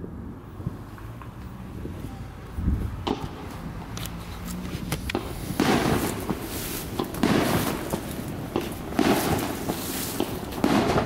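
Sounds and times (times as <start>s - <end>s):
fireworks booming: 2.7s - 3.6s, 5.1s - 11.0s
fireworks popping and crackling: 3.0s - 3.5s, 4.1s - 11.0s.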